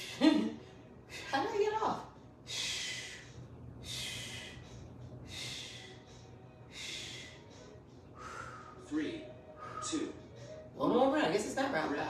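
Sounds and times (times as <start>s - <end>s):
woman breathing hard: 2.4s - 8.9s.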